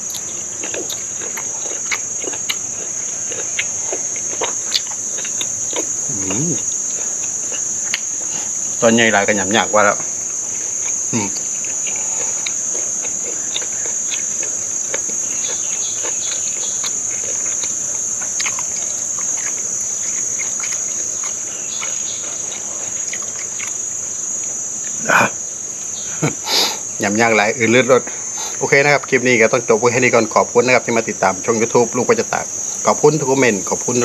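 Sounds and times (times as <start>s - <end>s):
insects shrilling: 0.0s - 34.0s.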